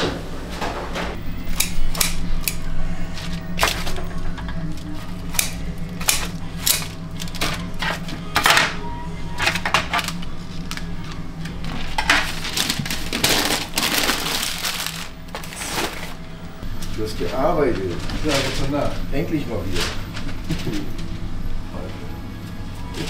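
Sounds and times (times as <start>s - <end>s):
steady low hum: 0.0s - 23.0s
utensils and dishes clinking: 1.5s - 14.8s.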